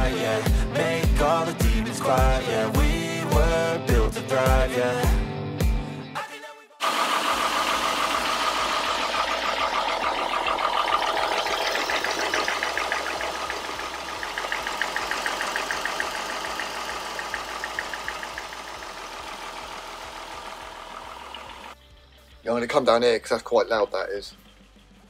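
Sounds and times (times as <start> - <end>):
car engine idling: 6.8 - 22.4
belt drive ticking: 7.4 - 21.8.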